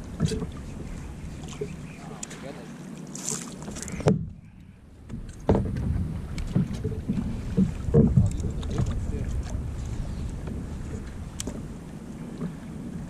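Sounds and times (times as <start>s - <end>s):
water slapping kayak hull: 0.0s - 13.0s
water splashes: 0.0s - 13.0s
wind buffeting microphone: 3.6s - 13.0s
knocks on kayak: 5.1s - 6.9s, 7.5s - 8.9s.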